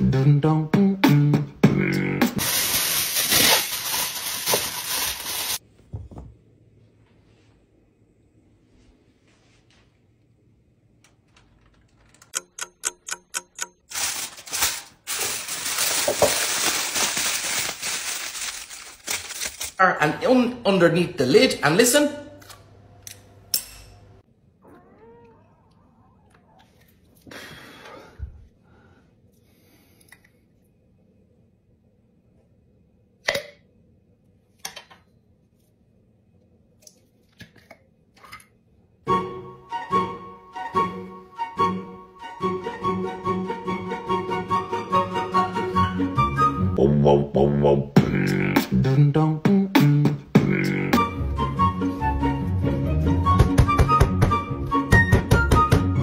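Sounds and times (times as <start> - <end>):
aluminium foil crinkling: 2.4 - 5.6, 13.9 - 19.8
clock ticking: 12.3 - 13.8.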